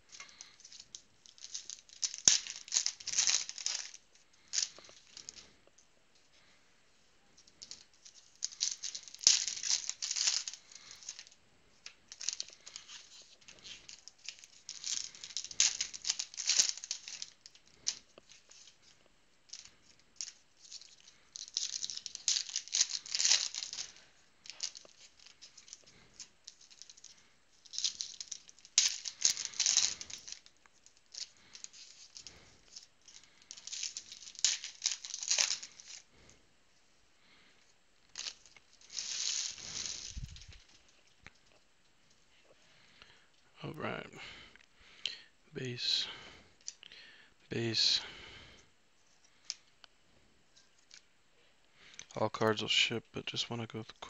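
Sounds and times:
cards being handled: 0.0s - 5.6s, 7.4s - 36.1s, 38.1s - 41.5s
foil wrappers crinkling and tearing: 0.1s - 5.5s, 7.6s - 18.9s, 19.5s - 36.3s, 37.2s - 41.4s.

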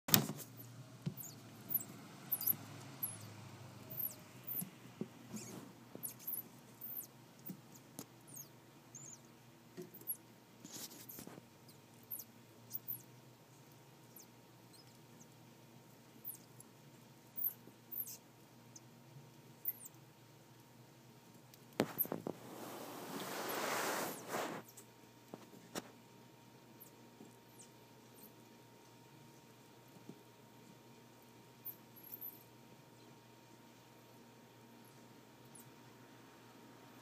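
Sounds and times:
mouse squeaking: 0.4s - 13.2s, 14.0s - 15.4s, 16.2s - 16.7s, 17.3s - 18.9s, 19.6s - 20.0s, 21.8s - 22.2s, 24.6s - 24.9s, 26.8s - 28.4s, 31.6s - 33.1s, 35.4s - 35.8s.

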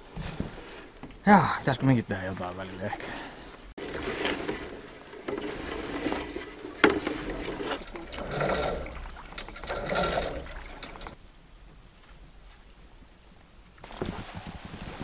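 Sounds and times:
cable and hull scraping: 3.8s - 11.2s.

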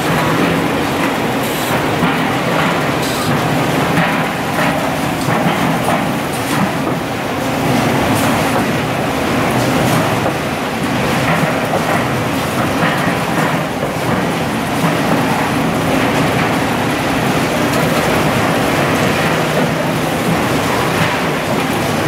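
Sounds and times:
can production line machinery: 0.0s - 22.0s.

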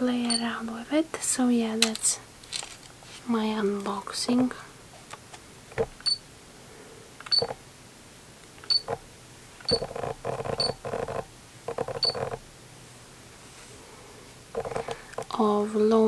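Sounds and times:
muffled handling noise: 1.7s - 6.0s.

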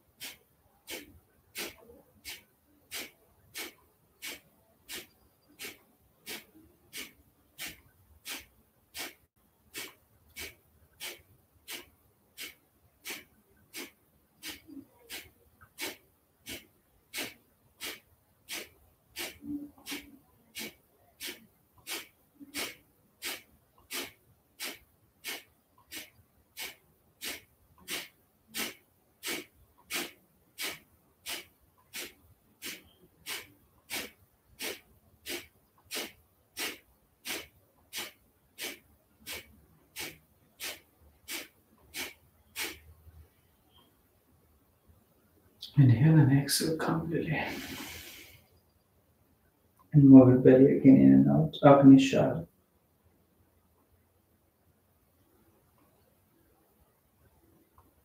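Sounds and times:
forceful nasal exhalations: 0.2s - 43.0s, 47.3s - 48.6s.

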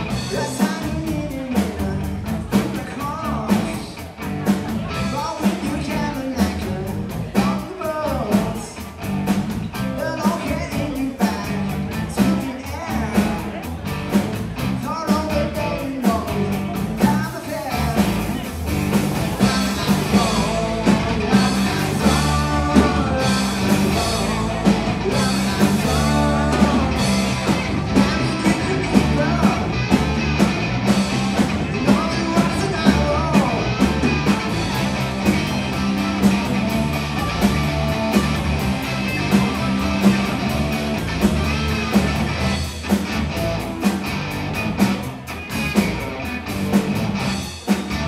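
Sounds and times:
bass guitar: 0.0s - 48.0s
drum kit beat: 0.0s - 48.0s
electric guitar: 0.0s - 48.0s
person singing: 19.4s - 30.1s, 31.4s - 34.7s.

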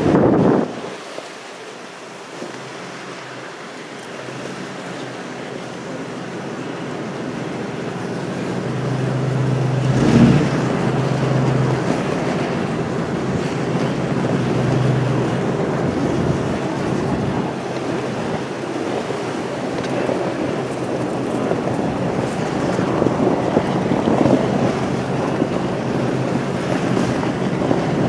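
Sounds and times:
low engine hum: 2.6s - 28.0s
truck driving over snow: 8.0s - 28.0s.

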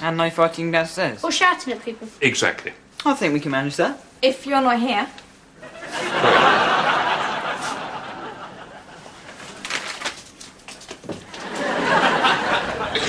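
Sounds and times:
audience laughing: 5.6s - 9.4s, 11.4s - 13.0s.

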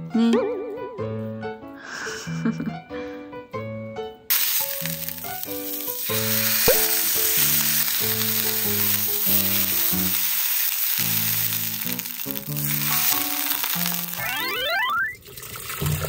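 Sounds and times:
background music: 0.0s - 14.9s
beef sizzling in frying pan: 4.3s - 15.0s.

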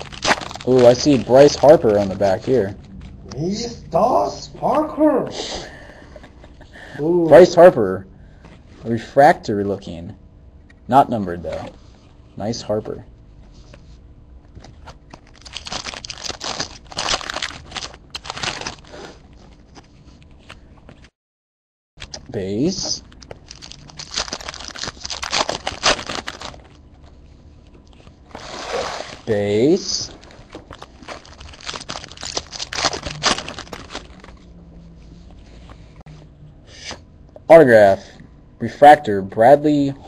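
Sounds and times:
foil wrapper crinkling: 0.0s - 3.1s, 15.1s - 19.9s, 23.0s - 26.8s, 30.2s - 34.4s
cards being handled: 0.0s - 3.4s, 30.2s - 34.5s
trading cards shuffling: 30.1s - 35.9s.

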